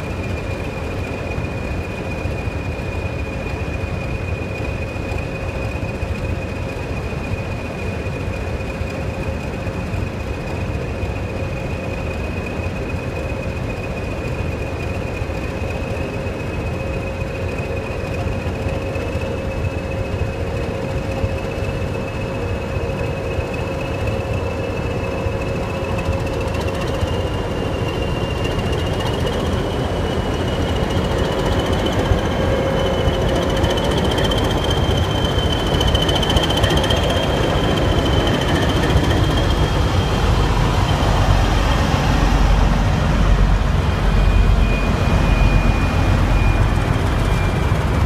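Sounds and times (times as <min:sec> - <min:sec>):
diesel locomotive engine rumble: 0:00.0 - 0:48.0
turbocharger whistle: 0:25.4 - 0:42.5, 0:43.3 - 0:48.0.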